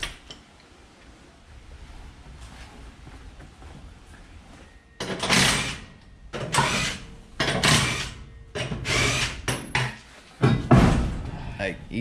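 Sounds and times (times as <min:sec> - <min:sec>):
cordless drill removing lug nuts: 0:05.1 - 0:09.7.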